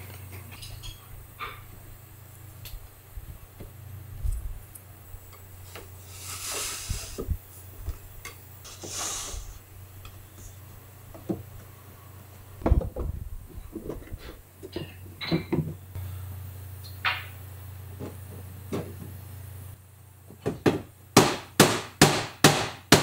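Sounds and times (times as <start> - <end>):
wooden knocks and clatter: 12.6 - 14.1.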